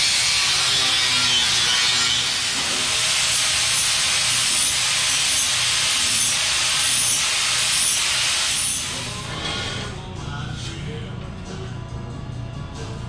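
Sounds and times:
electric grinder grinding steel: 0.0 - 10.0.

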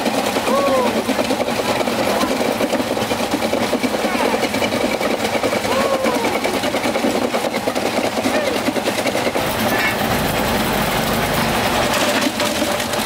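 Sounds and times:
small engines running: 0.0 - 13.0
many voices talking: 5.6 - 6.5.

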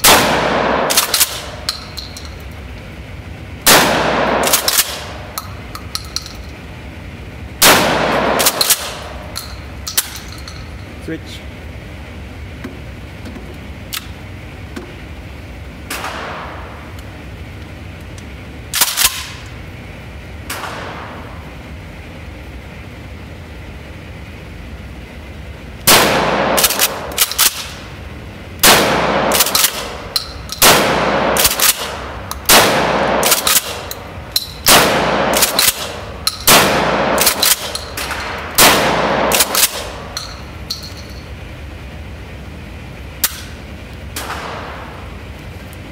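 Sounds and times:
shotgun shots echoing indoors: 0.0 - 2.3, 3.6 - 6.3, 7.6 - 10.7, 15.8 - 16.9, 18.7 - 19.5, 20.4 - 21.6, 25.8 - 27.9, 28.6 - 41.3, 43.1 - 45.2.

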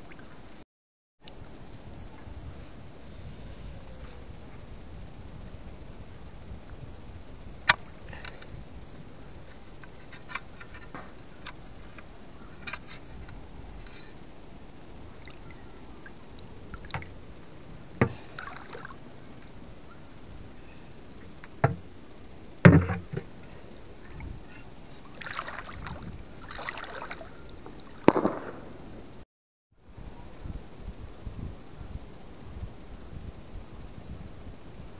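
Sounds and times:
shallow water sloshing: 18.0 - 19.0, 24.0 - 28.5
sharp splashes: 18.1 - 19.0, 25.1 - 28.7.

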